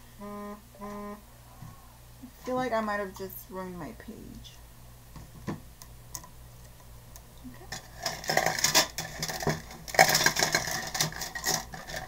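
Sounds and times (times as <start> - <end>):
art supplies rattling: 7.7 - 12.0.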